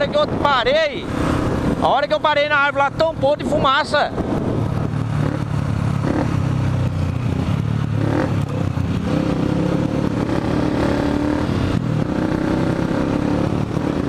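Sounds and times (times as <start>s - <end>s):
wind noise on microphone: 0.0s - 14.0s
motorcycle engine running: 1.1s - 14.0s.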